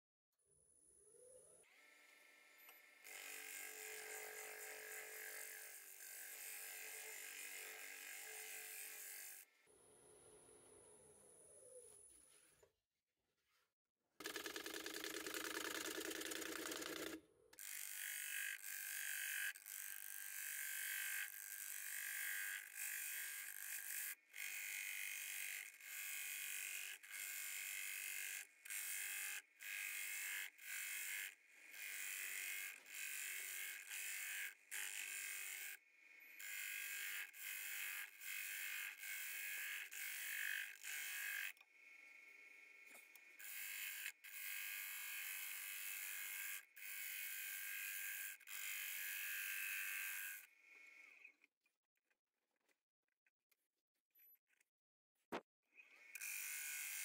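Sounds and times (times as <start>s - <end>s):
scraper shearing wood on lathe: 3.0s - 9.4s, 16.6s - 41.5s.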